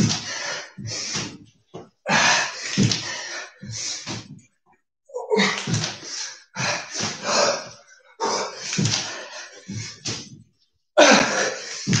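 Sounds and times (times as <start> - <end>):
feet and hands thudding on floor: 2.7 - 4.4, 5.4 - 7.2, 8.6 - 10.5.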